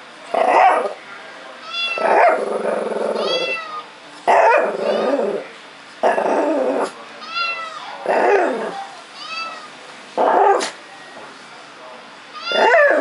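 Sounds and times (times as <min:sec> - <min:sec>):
puppy barking and growling: 0:00.3 - 0:01.0, 0:01.9 - 0:03.6, 0:04.3 - 0:05.4, 0:06.0 - 0:07.0, 0:07.9 - 0:08.8, 0:10.2 - 0:10.8, 0:12.4 - 0:13.0
cat meowing: 0:01.6 - 0:02.2, 0:03.2 - 0:03.9, 0:07.2 - 0:08.0, 0:09.2 - 0:09.7, 0:12.3 - 0:13.0.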